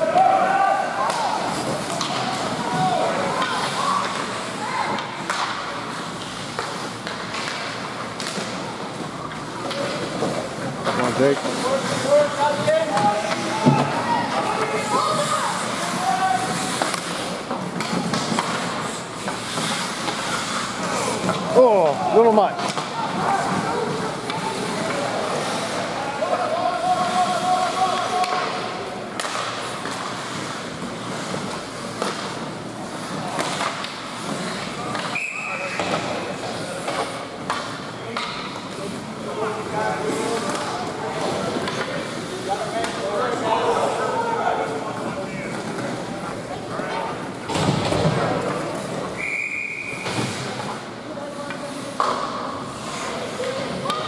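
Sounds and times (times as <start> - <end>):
hockey sticks and puck clacking: 0.0 - 43.9, 47.1 - 54.0
skates hissing on ice: 1.0 - 22.1, 23.1 - 37.9, 49.8 - 53.9.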